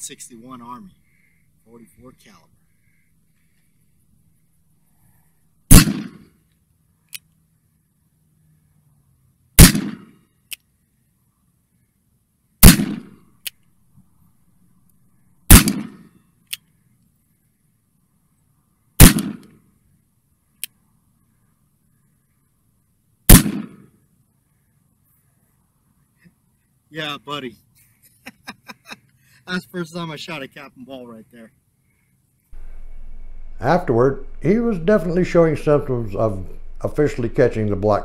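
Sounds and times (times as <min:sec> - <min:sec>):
revolver shots: 0:05.7 - 0:06.2, 0:09.6 - 0:10.1.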